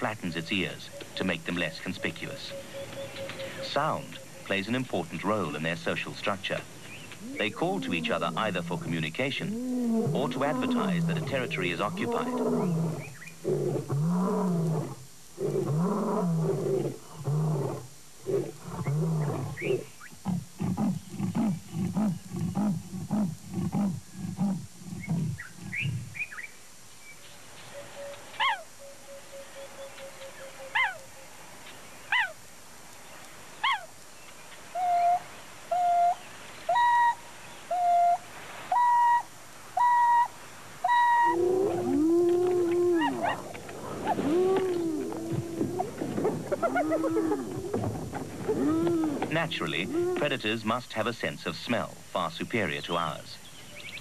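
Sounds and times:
wild dogs hooting: 6.8 - 26.2, 34.8 - 50.3
lion roaring and grunting: 7.2 - 26.1, 41.4 - 50.3.

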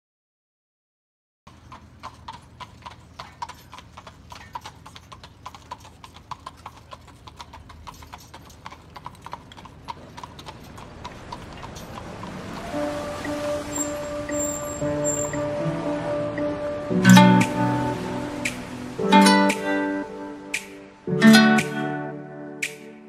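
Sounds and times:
horse hooves clip-clopping on pavement: 1.5 - 16.5.

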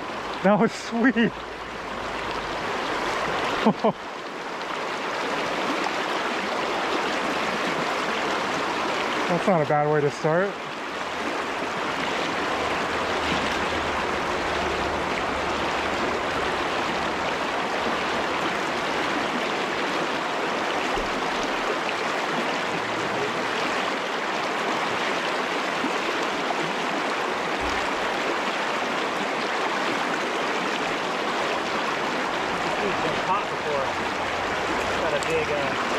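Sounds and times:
stream rushing over rocks: 0.0 - 35.9.

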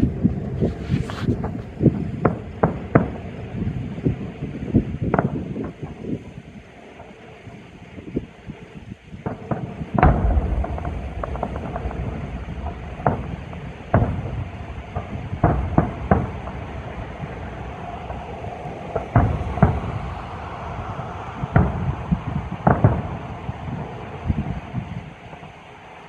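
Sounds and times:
firework shells booming: 9.2 - 25.5
low rumble: 10.0 - 23.6.

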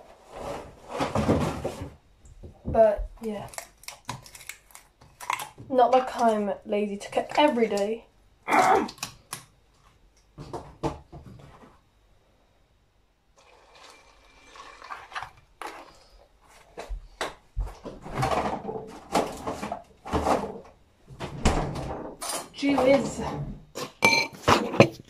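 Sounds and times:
cereal pouring: 13.4 - 15.9.

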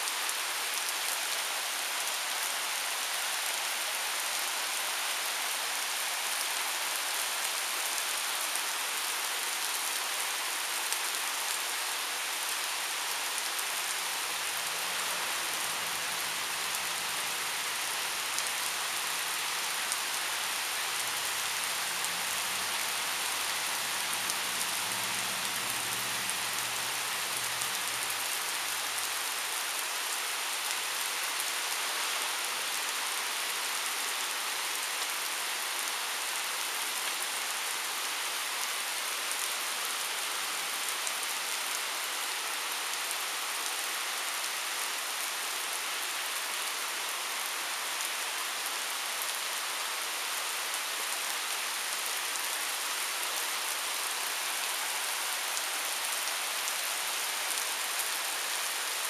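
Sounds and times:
heavy rain on pavement: 0.0 - 59.0.

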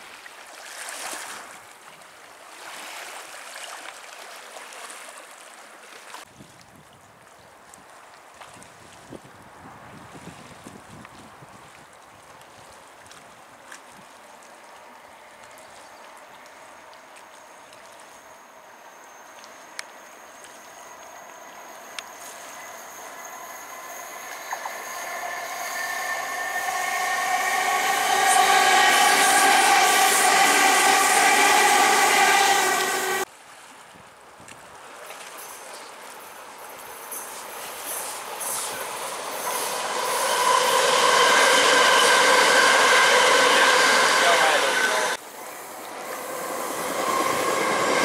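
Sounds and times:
electric train passing: 17.4 - 33.3, 35.4 - 48.0.

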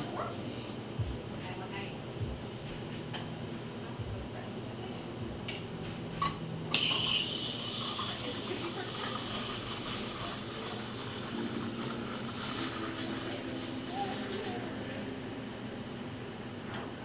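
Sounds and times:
steam wand hissing: 6.7 - 14.6.

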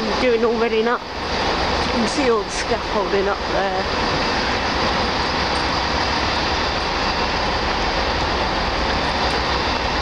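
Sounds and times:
constant low hum: 0.0 - 10.0
passenger train running: 0.0 - 10.0.

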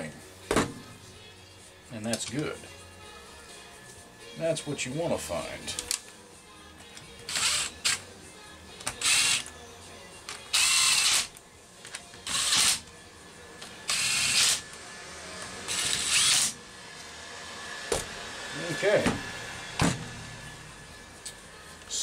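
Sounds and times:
cordless drill bursts: 7.3 - 8.0, 9.0 - 9.5, 10.5 - 11.3, 12.2 - 12.8, 13.9 - 14.8, 15.4 - 16.6.

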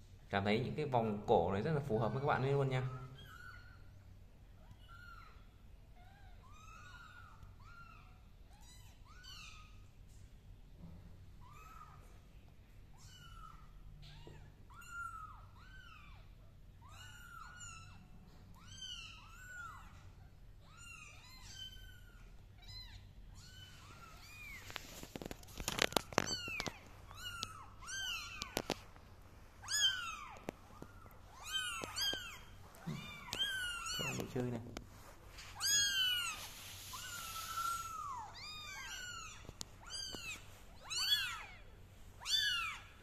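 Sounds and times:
kittens mewing: 13.0 - 28.9, 29.6 - 34.4, 35.5 - 43.0
knocks and rustling: 30.2 - 35.6.

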